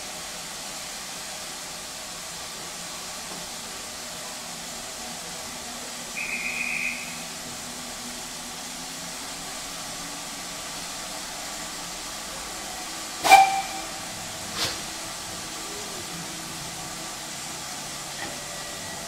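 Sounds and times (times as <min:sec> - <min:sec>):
steam hissing: 0:00.0 - 0:19.0
short high whistle: 0:06.2 - 0:07.3, 0:13.2 - 0:14.0.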